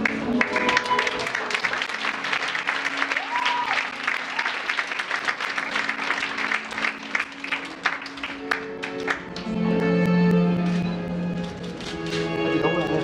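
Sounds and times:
audience applauding: 0:00.0 - 0:09.5.

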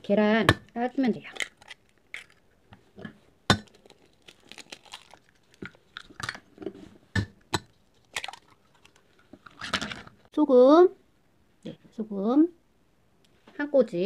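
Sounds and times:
eggshells cracking: 0:00.4 - 0:02.8, 0:03.5 - 0:10.2.

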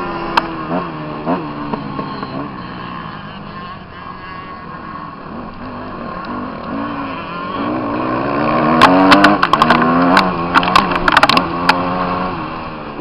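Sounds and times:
motorbike engine revving: 0:00.0 - 0:13.0
sharp cracks: 0:08.6 - 0:11.8.

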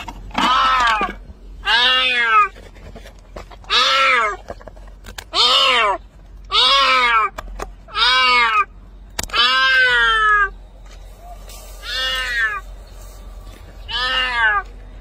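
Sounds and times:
cat meowing: 0:01.6 - 0:02.5, 0:03.7 - 0:04.4, 0:05.3 - 0:07.3, 0:09.3 - 0:10.5, 0:11.8 - 0:12.7, 0:13.9 - 0:14.7.

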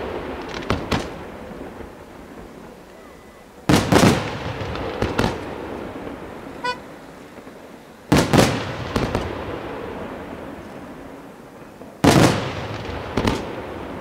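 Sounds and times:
firework shells bursting: 0:03.6 - 0:09.3
high toot: 0:06.6 - 0:07.1.

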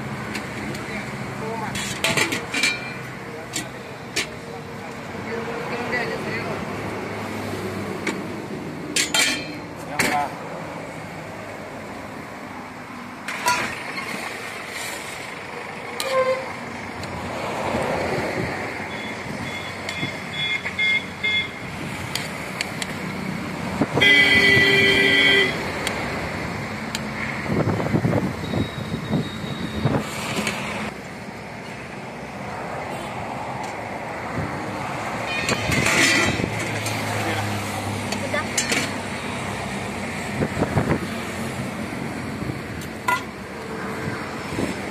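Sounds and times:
road traffic noise: 0:00.0 - 0:44.9
street noise: 0:00.0 - 0:44.9
metal ladles clinking on pots: 0:01.7 - 0:04.4, 0:08.9 - 0:10.2, 0:35.4 - 0:37.0
ladle clinking against pots: 0:01.8 - 0:03.0, 0:09.0 - 0:10.2
voices: 0:37.0 - 0:39.0.

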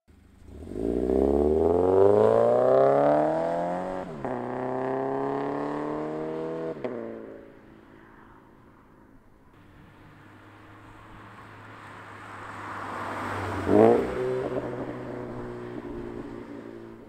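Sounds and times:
car engine accelerating hard: 0:00.3 - 0:06.8.

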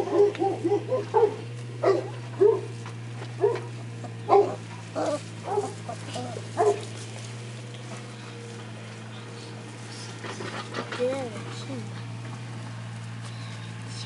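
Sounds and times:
puppies yelping and whimpering: 0:00.0 - 0:02.7, 0:03.4 - 0:07.0.

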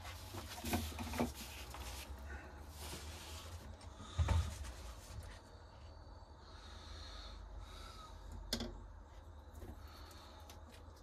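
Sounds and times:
rustling: 0:00.0 - 0:05.5
objects knocking and clattering: 0:08.5 - 0:08.9.

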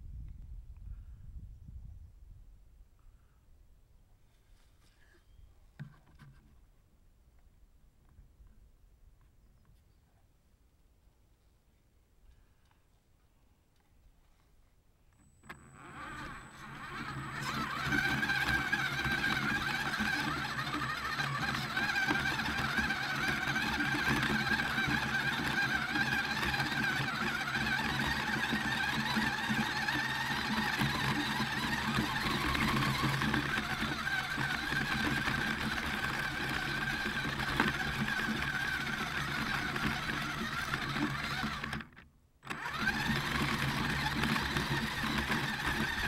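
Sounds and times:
toy car electric motor whirring: 0:15.4 - 0:46.0.

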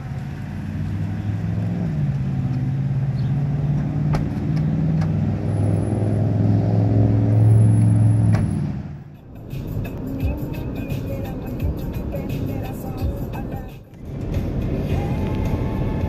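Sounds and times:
vehicle engine running: 0:06.5 - 0:16.0.

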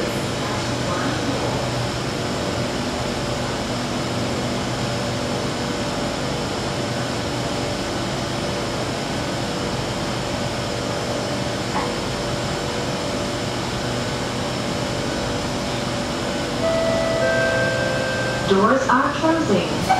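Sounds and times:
steady tones: 0:16.6 - 0:19.9
air-conditioning hum and hiss: 0:16.7 - 0:19.9.

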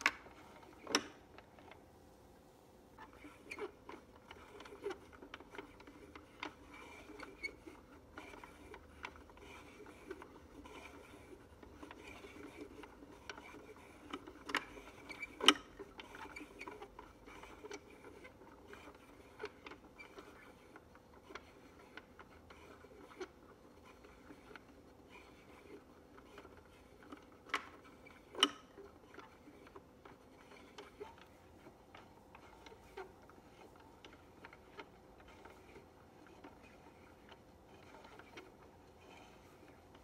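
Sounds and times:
wooden gears clicking and knocking: 0:00.0 - 0:01.8, 0:03.0 - 0:40.0.

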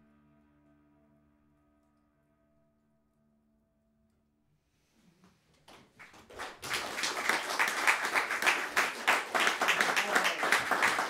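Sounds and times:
audience applauding: 0:05.5 - 0:11.0.

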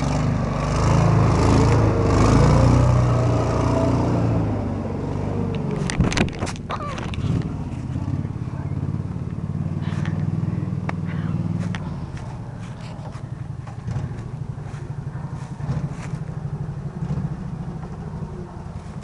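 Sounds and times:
atv engine running: 0:00.0 - 0:19.0
leaves and twigs crackling under tyres: 0:11.4 - 0:17.1.

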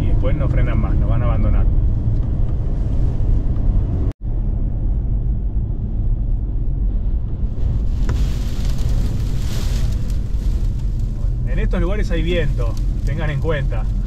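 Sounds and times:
car road and engine rumble: 0:00.0 - 0:14.0
gusting wind hiss: 0:06.8 - 0:14.0.

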